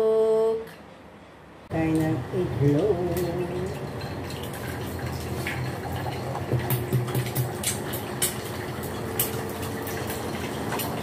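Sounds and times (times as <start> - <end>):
oil popping and crackling: 2.7 - 11.0
egg sizzling in oil: 3.2 - 11.0.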